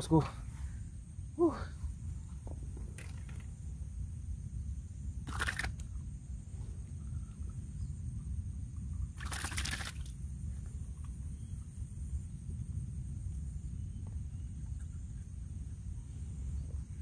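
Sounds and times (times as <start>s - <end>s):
low steady rumble: 0.0s - 17.0s
water splashing: 5.3s - 5.8s, 9.2s - 10.1s.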